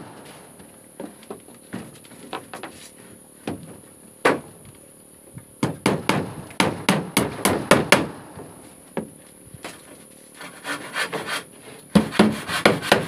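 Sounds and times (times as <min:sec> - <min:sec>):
hammer nailing floorboards: 0:05.6 - 0:08.5, 0:11.9 - 0:13.0.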